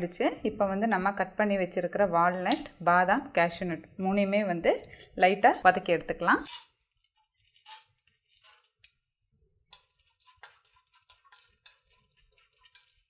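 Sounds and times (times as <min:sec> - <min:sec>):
nuts stirred with spatula: 0:09.8 - 0:13.0.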